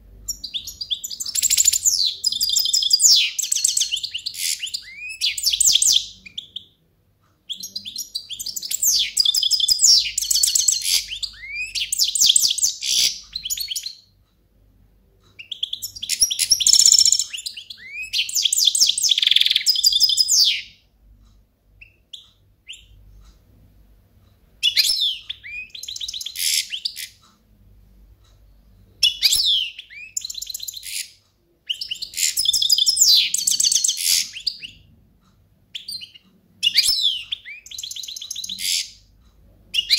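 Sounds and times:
goldfinch singing trills and chirps: 0.3 - 6.7, 7.5 - 14.0, 15.4 - 20.8, 24.6 - 27.2, 31.7 - 34.8, 35.8 - 38.9.

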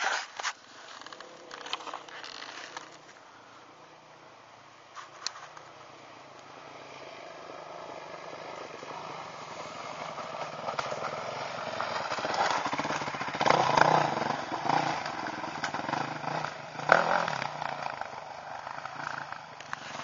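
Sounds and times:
motorcycle engine revving: 6.5 - 20.0.

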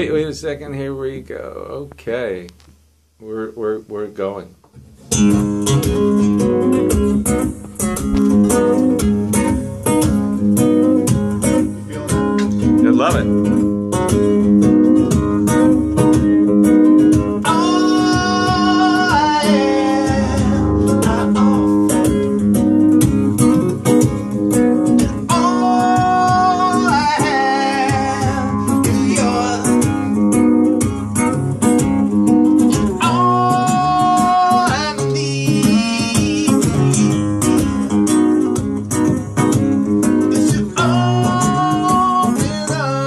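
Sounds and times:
strummed acoustic guitar: 4.6 - 43.0
man singing: 17.4 - 22.6, 25.0 - 30.3, 32.7 - 36.9, 40.2 - 43.0.

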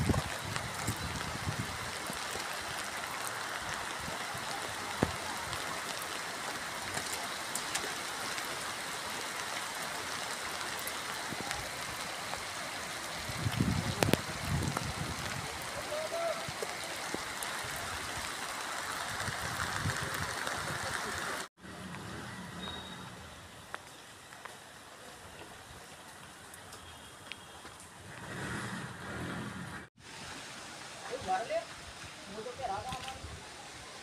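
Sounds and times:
heavy rain falling: 0.0 - 22.1.

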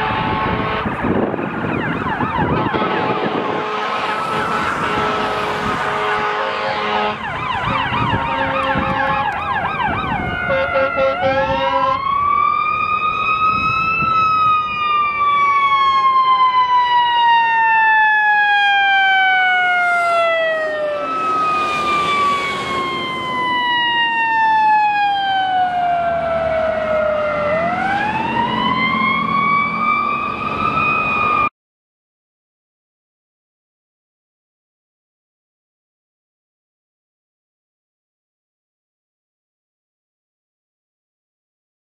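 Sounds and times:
fire truck sirens: 0.0 - 31.5
heavy truck engines rumbling: 0.0 - 31.5.

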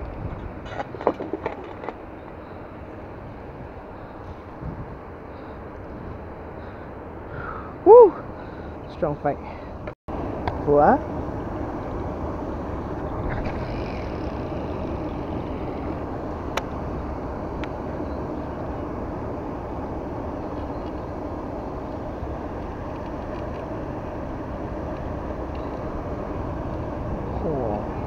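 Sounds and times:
low rumbling outdoor noise: 0.0 - 28.0.

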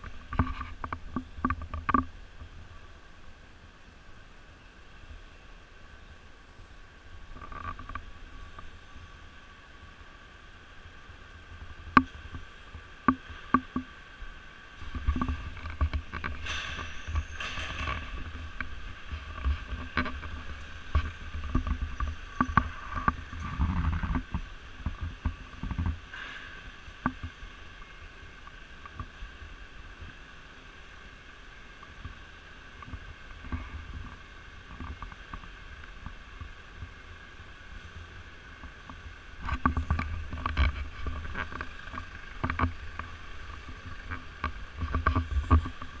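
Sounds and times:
sharp clicks and knocks: 0.0 - 2.1, 11.9 - 13.9, 14.8 - 27.4, 38.6 - 46.0
steady hum: 0.0 - 46.0
camera handling rumble: 39.4 - 46.0.

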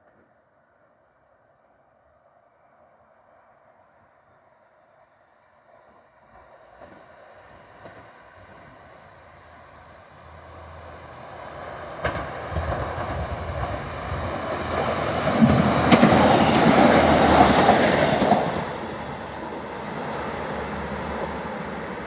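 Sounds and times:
diesel train passing: 5.0 - 22.0
wheels clacking over rails: 11.8 - 22.0.

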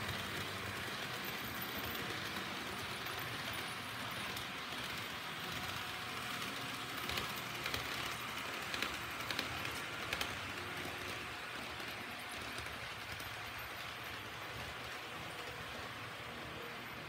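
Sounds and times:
model train motors whirring: 0.0 - 17.0
wheels clicking over track: 0.0 - 17.0.

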